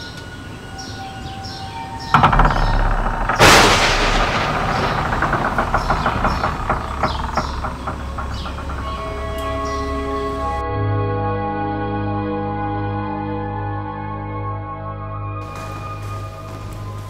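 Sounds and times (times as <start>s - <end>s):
high falling chirps: 0.5s - 10.6s
sharp crackles: 2.1s - 10.6s, 15.4s - 17.0s
loud blast: 2.2s - 8.8s.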